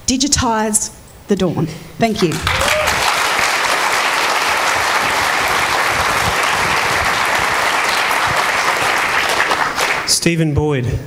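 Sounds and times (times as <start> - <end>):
audience applauding: 2.2 - 10.3.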